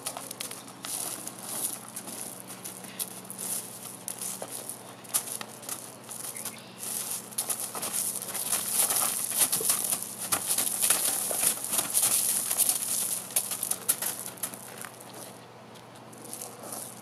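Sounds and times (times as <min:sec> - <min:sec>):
hooves crunching on gravel: 0:00.0 - 0:17.0.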